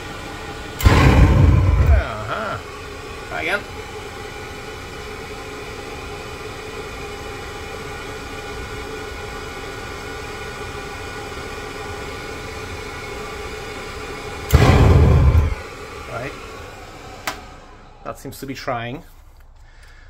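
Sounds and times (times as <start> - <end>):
oil burner fan humming: 0.0 - 20.0
loud low rumble: 0.8 - 2.6, 14.5 - 15.6.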